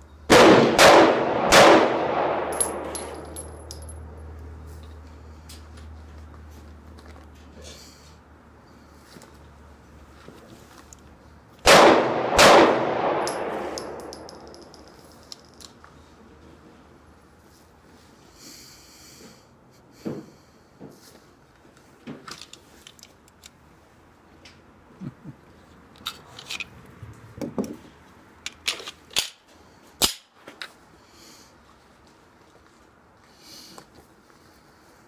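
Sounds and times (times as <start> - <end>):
pistol shots echoing: 0.3 - 3.5, 11.6 - 14.6
pistol handling clicks: 1.6 - 3.9, 11.6 - 15.8.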